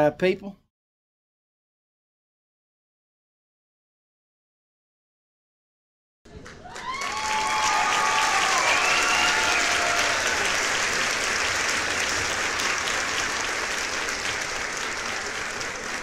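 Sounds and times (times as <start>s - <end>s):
crowd applauding: 6.3s - 16.0s
drawn-out cheers: 6.6s - 11.1s.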